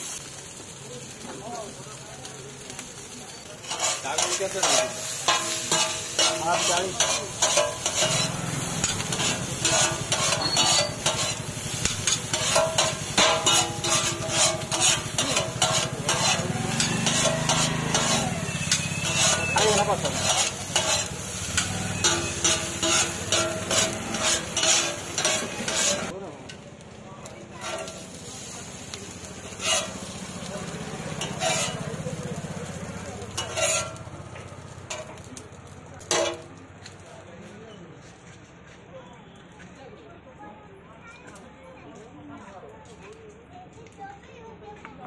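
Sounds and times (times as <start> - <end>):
frying sizzle: 0.0 - 37.2
metal spatulas scraping griddle: 3.3 - 26.2, 27.5 - 36.6.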